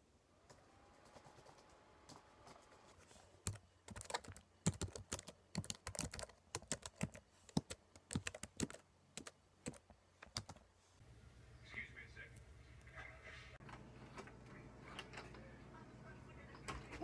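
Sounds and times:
fast typing on laptop keyboard: 0:01.0 - 0:02.7, 0:03.4 - 0:10.6.

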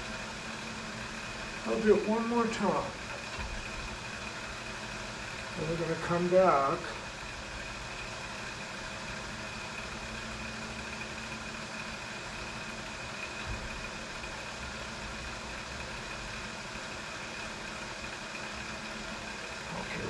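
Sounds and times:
lathe drive humming and whining: 0:00.0 - 0:20.0.

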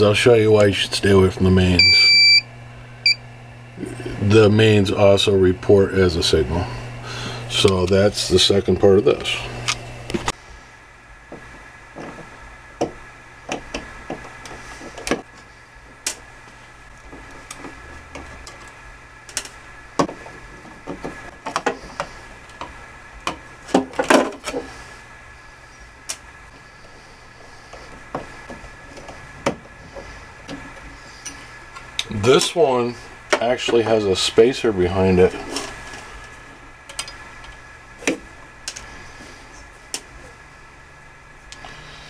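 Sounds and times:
steady hum: 0:00.0 - 0:42.0.

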